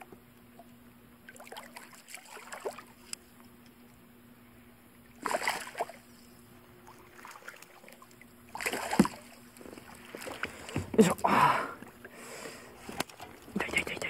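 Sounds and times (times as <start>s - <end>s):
fish splashing in a landing net: 1.3s - 2.9s, 5.2s - 6.1s, 6.9s - 11.1s.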